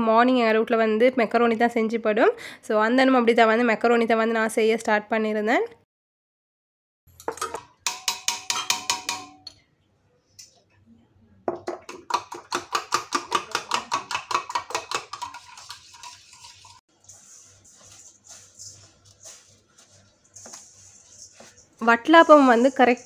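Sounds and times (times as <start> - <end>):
spoon clinking against steel mug: 7.2 - 9.6.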